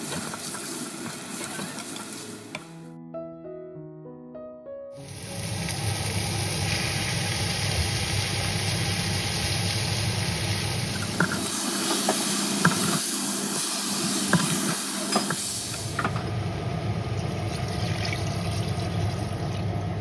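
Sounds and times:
meat sizzling in hot oil: 0:05.0 - 0:19.7.

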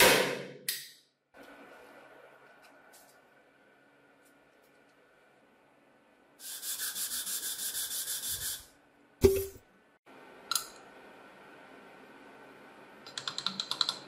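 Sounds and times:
sandpaper scraping on wood: 0:06.4 - 0:08.7.

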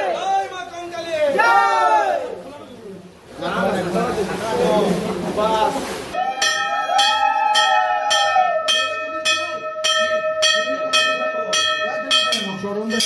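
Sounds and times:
long held tone: 0:06.2 - 0:13.0
brass temple bell strikes: 0:06.4 - 0:13.0.

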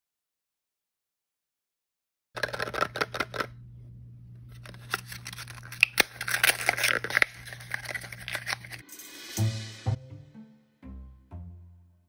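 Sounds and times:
plastic packaging crinkling: 0:02.4 - 0:03.5, 0:04.4 - 0:08.8
lid peeling off: 0:04.5 - 0:08.8.

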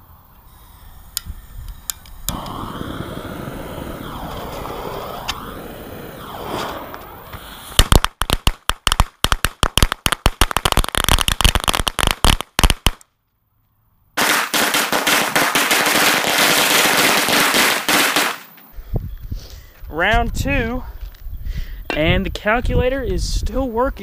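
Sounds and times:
firecrackers banging: 0:02.2 - 0:13.0, 0:14.2 - 0:18.7.

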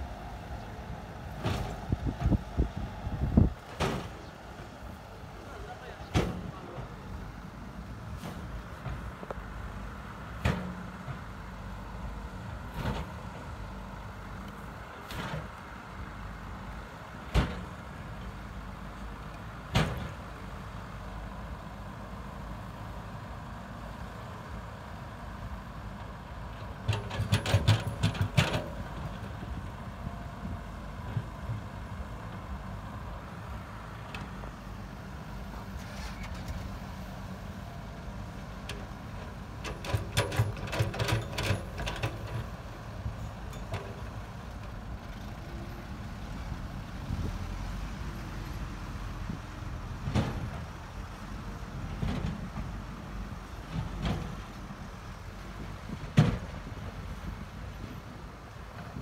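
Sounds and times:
diesel engines running: 0:00.0 - 0:59.0
rapid metal clanking and rattling: 0:26.9 - 0:28.8, 0:39.6 - 0:42.5.

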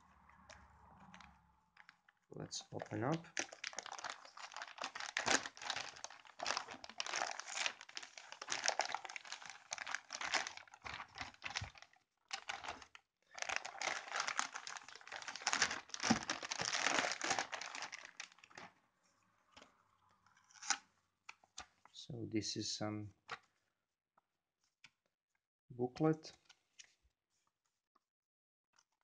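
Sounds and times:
plastic bag crinkling: 0:01.0 - 0:18.7.

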